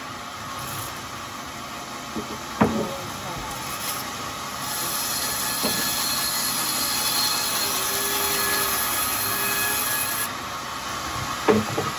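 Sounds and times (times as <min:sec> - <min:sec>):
saw blade cutting wood: 0:03.6 - 0:10.3.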